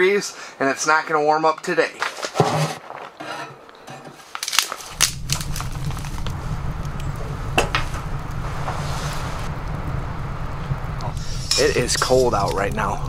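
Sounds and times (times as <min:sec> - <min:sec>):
steady low rumble: 0:04.9 - 0:13.0.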